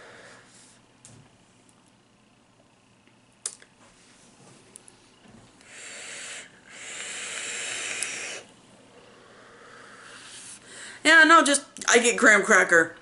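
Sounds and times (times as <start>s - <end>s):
e-cigarette air hissing: 5.6s - 8.5s, 9.1s - 10.7s.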